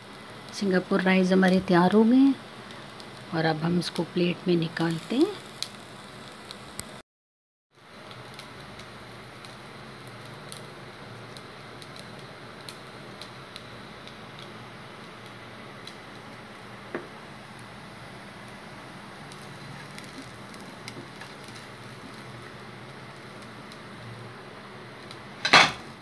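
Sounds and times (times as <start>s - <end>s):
steady hiss: 7.8s - 26.0s.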